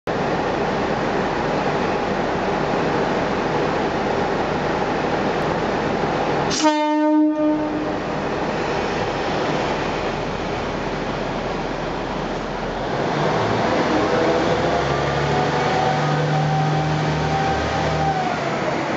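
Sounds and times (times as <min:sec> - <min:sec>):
train engine rumble: 0:00.1 - 0:18.9
train horn blast: 0:06.5 - 0:08.1.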